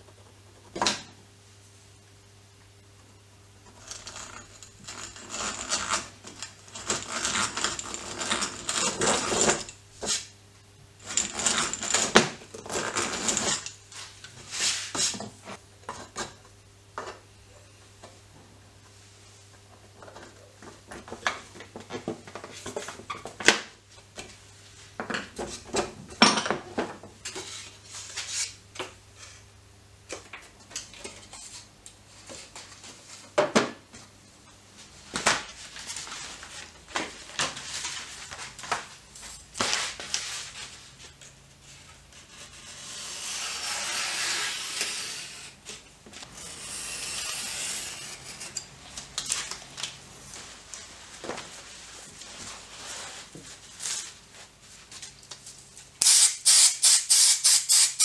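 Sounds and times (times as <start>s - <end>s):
rustling and scraping: 11.0s - 15.6s, 34.8s - 55.9s
card sheets being cut: 42.8s - 45.5s.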